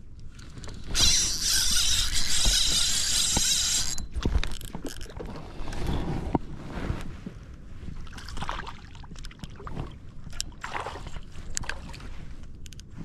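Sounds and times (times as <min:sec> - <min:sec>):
reel and tackle clicks: 0:00.4 - 0:05.3, 0:11.4 - 0:11.8, 0:12.4 - 0:12.9
fishing reel whirring: 0:00.7 - 0:05.1.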